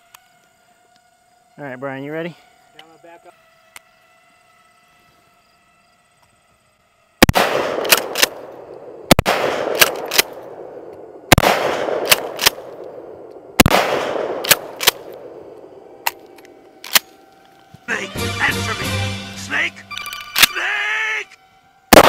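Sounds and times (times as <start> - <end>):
shotgun blasts with echo: 7.2 - 15.4
faint steady whine: 14.2 - 22.0.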